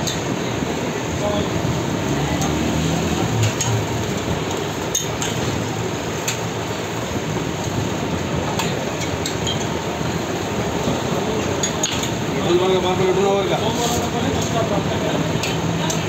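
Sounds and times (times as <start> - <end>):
steady noisy background: 0.0 - 16.0
metal utensils clinking on steel: 3.3 - 5.6, 8.5 - 9.8, 11.3 - 12.2.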